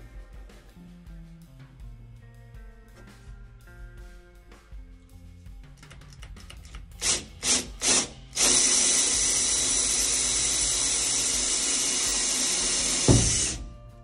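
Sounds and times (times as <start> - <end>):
cordless drill drilling metal: 7.0 - 13.7
thump: 13.0 - 13.8.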